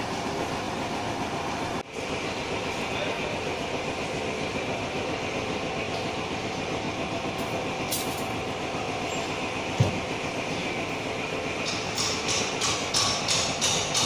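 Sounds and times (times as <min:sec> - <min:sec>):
rumbling mechanical noise: 0:00.0 - 0:14.0.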